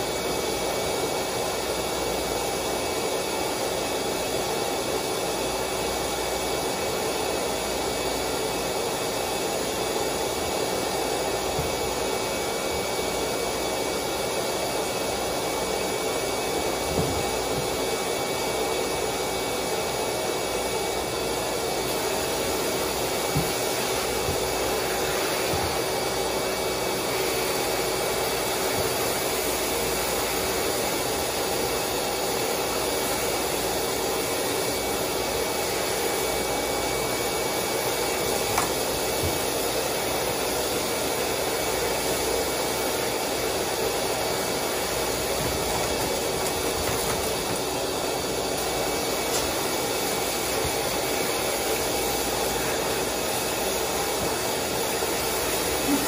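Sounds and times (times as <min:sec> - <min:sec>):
mechanical hum: 0:07.5 - 0:56.0
hose water rushing: 0:20.8 - 0:32.0.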